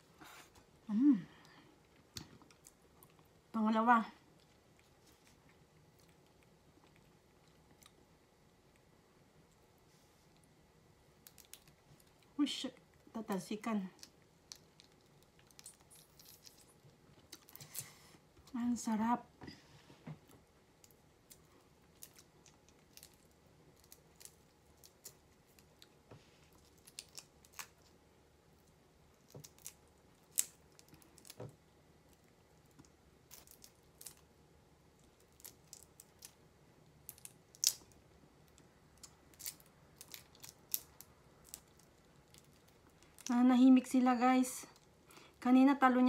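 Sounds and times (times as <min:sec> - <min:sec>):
shrimp shells clicking and crackling: 0:11.2 - 0:12.3, 0:13.2 - 0:17.8, 0:26.6 - 0:27.9, 0:29.1 - 0:31.5, 0:32.1 - 0:34.3, 0:35.0 - 0:36.4, 0:37.0 - 0:43.4.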